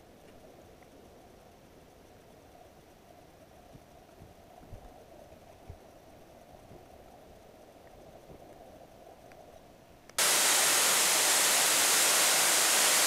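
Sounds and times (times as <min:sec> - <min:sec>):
waterfall rushing: 0:10.2 - 0:13.0.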